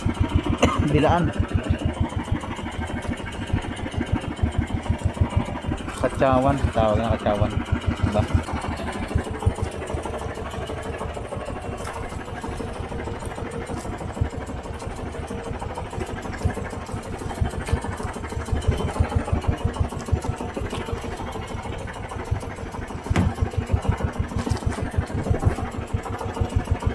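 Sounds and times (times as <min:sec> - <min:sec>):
boat engine chugging: 0:00.0 - 0:26.9
sharp knocks: 0:23.0 - 0:23.7.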